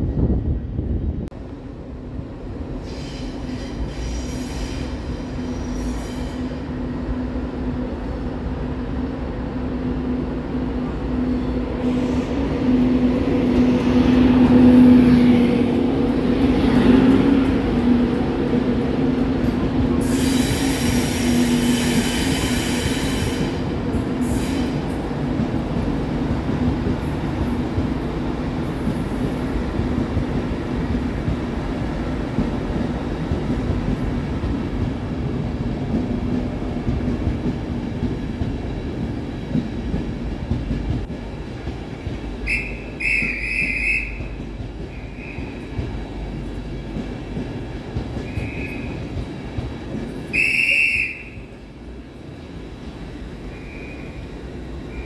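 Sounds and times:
electric train passing hum: 0.0s - 55.0s.

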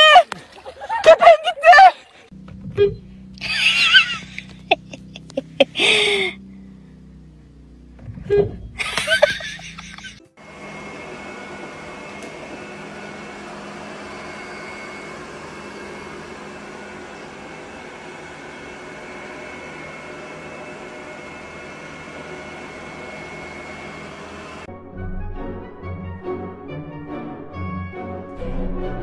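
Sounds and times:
robot vacuum cleaner whirring: 8.2s - 24.7s.

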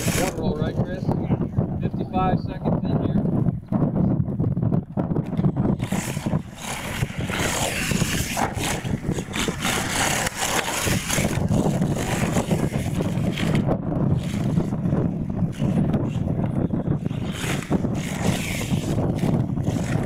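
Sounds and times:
toy truck motor running: 5.7s - 13.6s.

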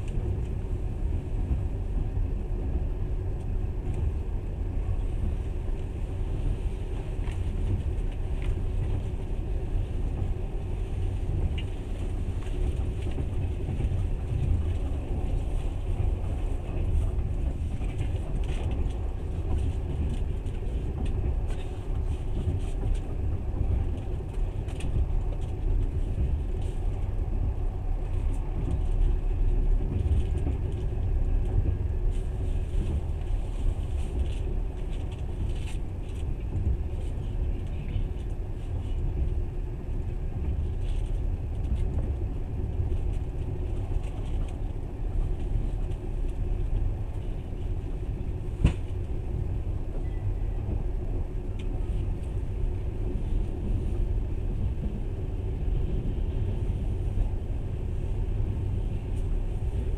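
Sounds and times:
train wheels rumbling on rails: 0.0s - 59.9s
faint rail clicks: 7.0s - 39.4s.

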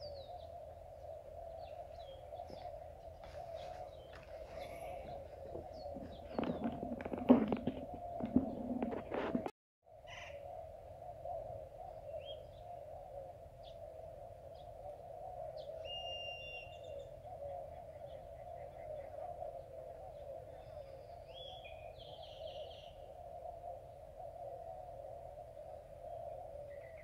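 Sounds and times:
birds chirping: 0.0s - 9.5s.

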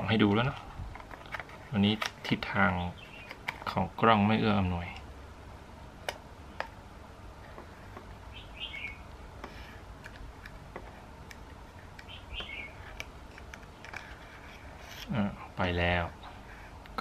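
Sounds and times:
bird chirping: 2.6s - 3.5s, 8.2s - 9.1s, 12.0s - 12.9s.

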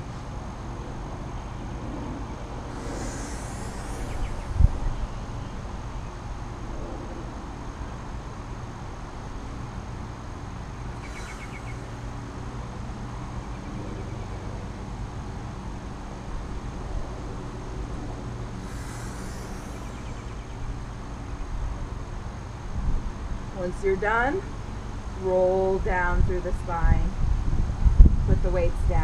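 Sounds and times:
low outdoor rumble: 0.0s - 29.0s
short high chirps: 10.9s - 12.6s.

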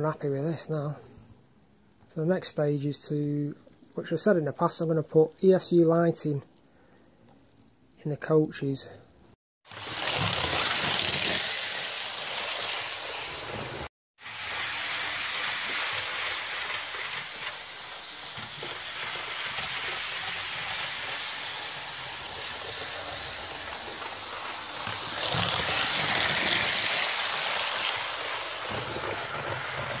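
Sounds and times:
model train rattling on track: 9.7s - 13.8s, 14.4s - 30.0s.

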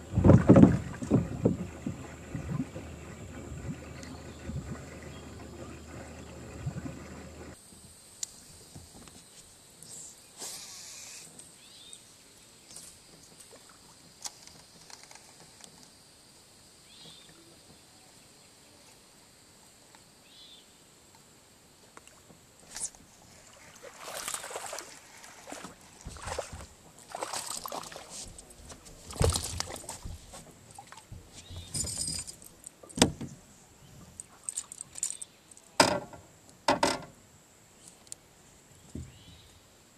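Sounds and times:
low thump: 0.1s - 5.6s
fishing cast hiss: 9.8s - 11.4s.

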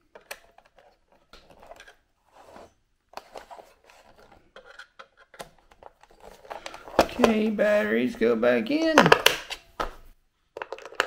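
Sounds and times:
plastic case clicks: 8.9s - 10.0s.

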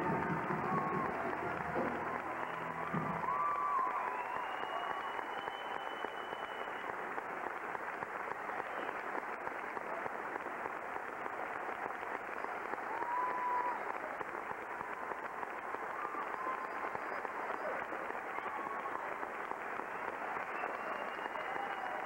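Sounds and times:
high whoop: 0.0s - 6.8s, 12.8s - 14.0s, 14.9s - 19.2s, 19.8s - 22.0s
audience applauding: 0.0s - 22.0s.

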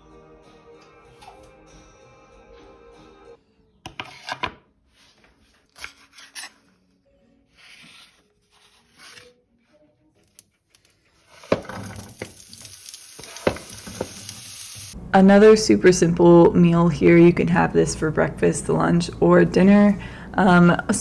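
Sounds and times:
scraping on wooden cutting board: 3.9s - 4.6s
frying pan sizzling: 11.2s - 15.0s
vegetables clattering into pan: 11.3s - 14.5s.

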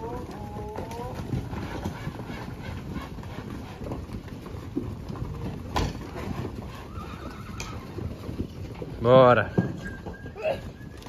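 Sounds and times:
hooves trampling on ground: 0.0s - 11.0s.

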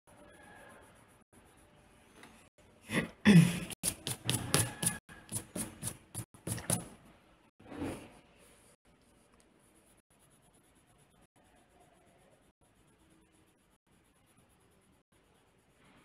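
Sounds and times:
pencil scratching on paper: 0.1s - 2.2s, 3.8s - 7.0s, 8.5s - 16.0s.

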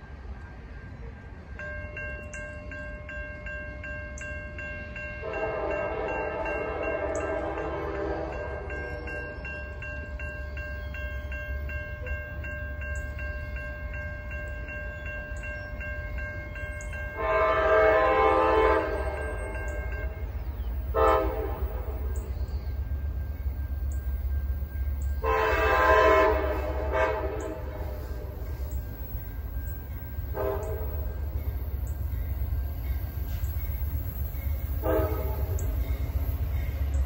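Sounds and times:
railroad crossing bell ringing: 0.0s - 37.0s
train air horn blasts: 5.2s - 9.0s, 17.1s - 22.3s, 25.2s - 28.9s, 30.2s - 31.4s, 34.7s - 35.8s.

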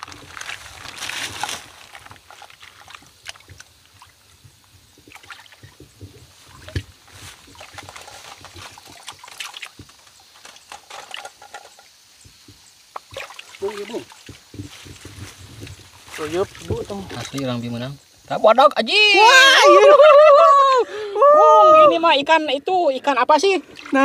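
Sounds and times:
plastic bag rustling: 0.0s - 2.8s
small splashes and clicks: 0.0s - 17.8s
hands sloshing in muddy water: 5.0s - 10.0s, 13.0s - 17.6s, 23.6s - 24.0s.

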